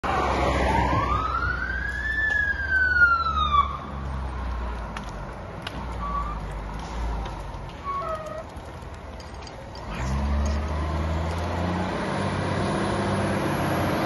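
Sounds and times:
fire engine siren wailing: 0.0s - 4.3s.

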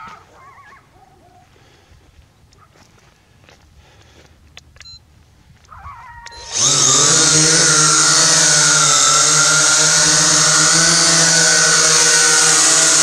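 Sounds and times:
drone motors buzzing whine: 6.3s - 13.0s.

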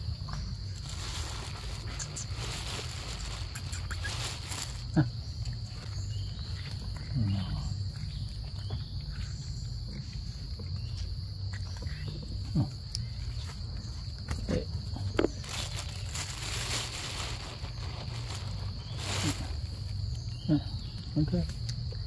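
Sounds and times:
forest insects droning: 0.0s - 22.0s
monkey calls: 3.5s - 4.3s.

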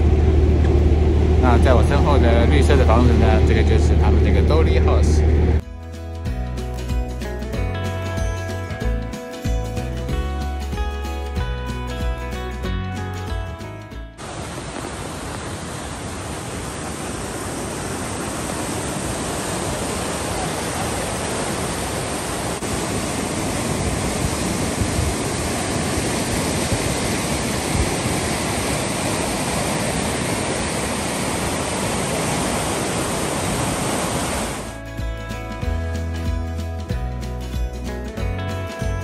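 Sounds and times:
water rushing over rocks: 14.2s - 34.8s.

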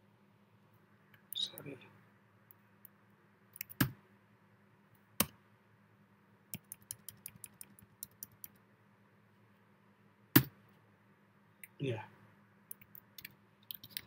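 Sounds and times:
computer keyboard typing: 3.6s - 3.9s, 6.5s - 8.6s, 12.7s - 14.0s.

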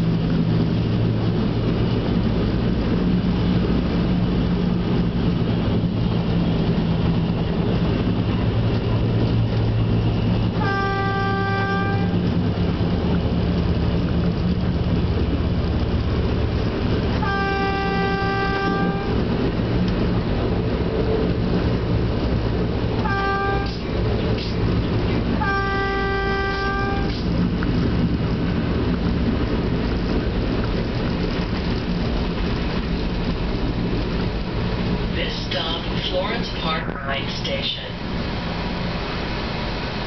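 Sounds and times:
train engine and rail drone: 0.0s - 40.0s
train horn blasts: 10.5s - 12.3s, 17.2s - 19.4s, 23.0s - 24.0s, 25.4s - 27.3s.

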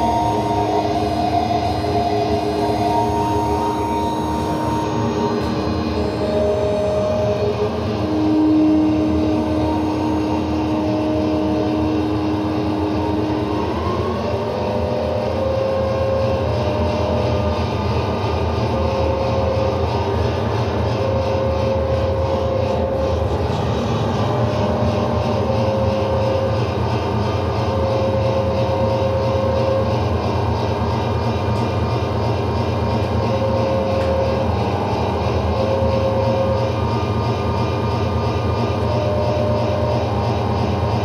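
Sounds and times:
mid-pitched held tone: 0.0s - 29.2s
electronic drone: 0.0s - 41.0s.

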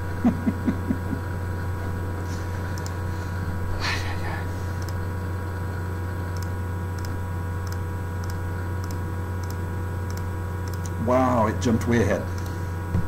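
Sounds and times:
low electrical hum: 0.0s - 13.0s
faint high ticks: 6.3s - 10.9s.

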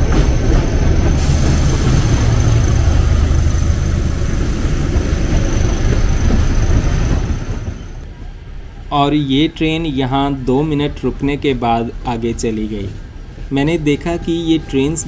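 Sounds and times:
train coaches rolling on rails: 0.0s - 8.9s
diesel locomotive engine drone: 0.0s - 15.0s.

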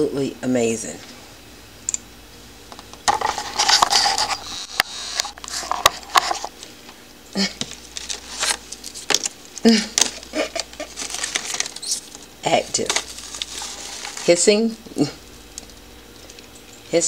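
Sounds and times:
plastic tub handling noise: 2.8s - 6.6s
rustling in plastic tub: 10.1s - 14.8s.

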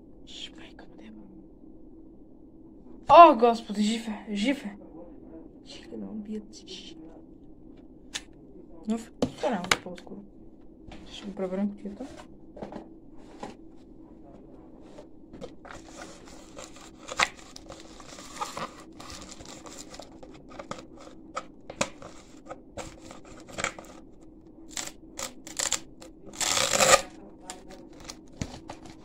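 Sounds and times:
crinkling and rustling: 14.8s - 29.0s.

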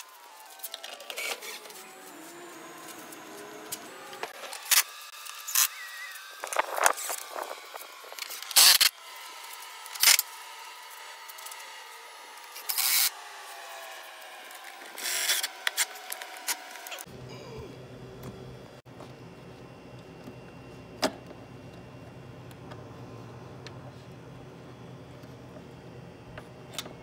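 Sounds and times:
cordless drill bursts: 4.0s - 16.8s.

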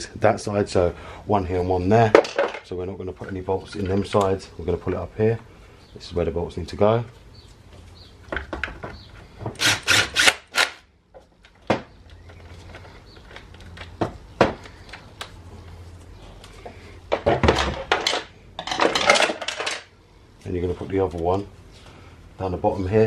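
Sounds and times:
metal tools and bolts clinking: 17.9s - 19.9s.

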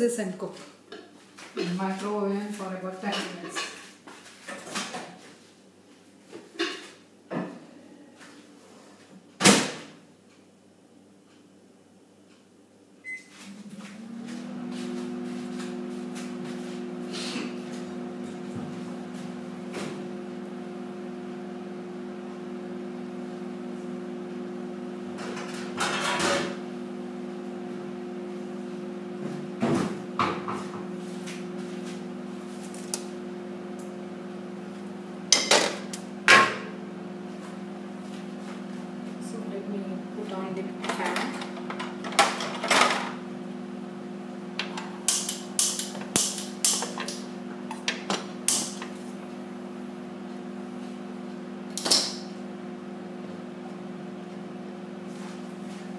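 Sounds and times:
microwave oven humming: 9.6s - 55.9s
microwave oven beep: 13.0s - 13.9s.

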